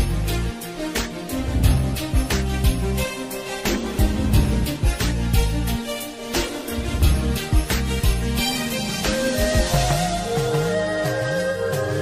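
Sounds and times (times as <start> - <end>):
melody over gliding bass: 1.2 - 12.0
drum hits: 3.6 - 5.7.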